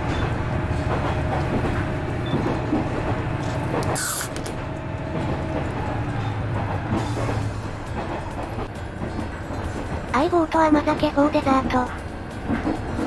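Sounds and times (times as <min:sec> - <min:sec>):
railcar running rumble: 0:00.0 - 0:13.0
can ring-pull hiss: 0:04.0 - 0:04.5.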